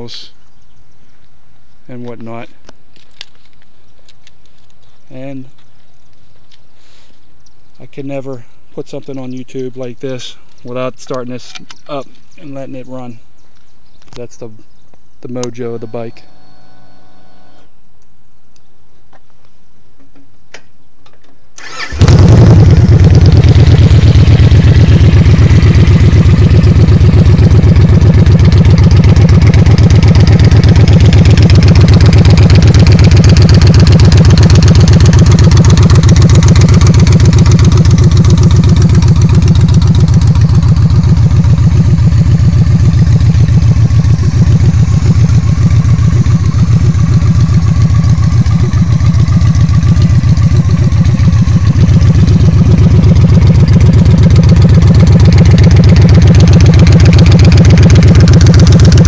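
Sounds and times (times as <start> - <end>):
motorcycle engine running loudly: 21.9 - 59.0.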